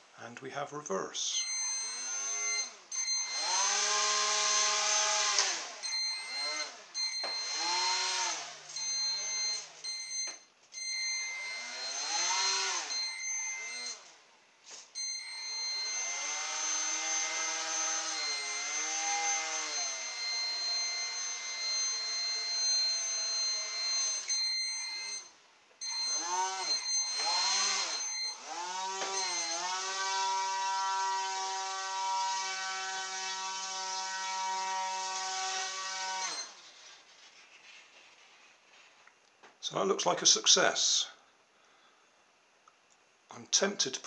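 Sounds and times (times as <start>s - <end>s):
small electric motor whining: 1.6s - 9.8s, 11.2s - 14.1s, 15.2s - 25.2s, 25.8s - 36.8s
thin steady high tone: 5.8s - 14.1s, 15.0s - 38.1s.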